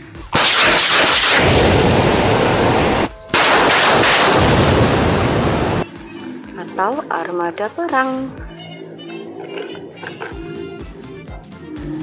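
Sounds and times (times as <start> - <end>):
rocket launcher firing: 0.3 - 5.8.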